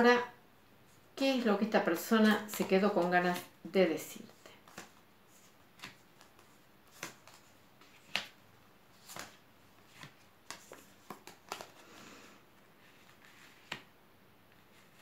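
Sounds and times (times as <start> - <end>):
cards sliding rustle: 4.3 - 13.9, 14.5 - 15.0.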